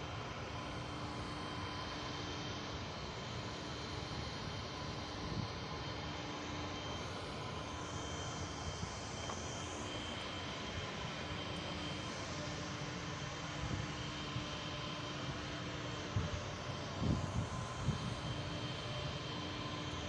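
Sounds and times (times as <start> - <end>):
faint steady hums: 0.0 - 20.0.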